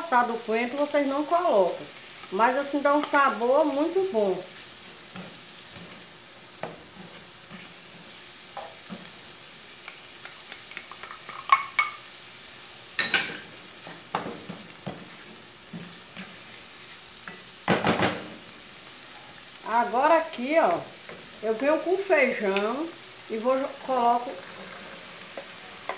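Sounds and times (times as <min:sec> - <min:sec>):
vegetables sizzling in a frying pan: 0:00.0 - 0:25.9
spatula scraping and knocking on pan: 0:04.9 - 0:09.2, 0:13.0 - 0:16.6, 0:17.2 - 0:18.4.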